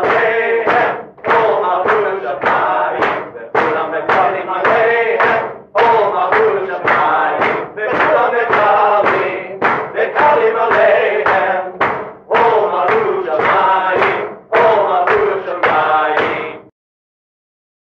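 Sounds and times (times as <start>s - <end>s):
voices singing: 0.0s - 16.7s.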